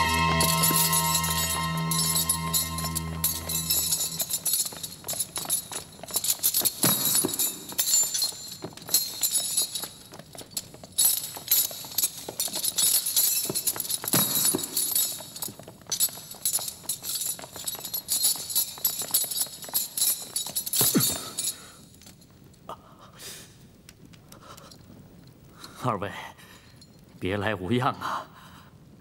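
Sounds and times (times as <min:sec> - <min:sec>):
chains clinking and rattling: 0:00.0 - 0:22.6.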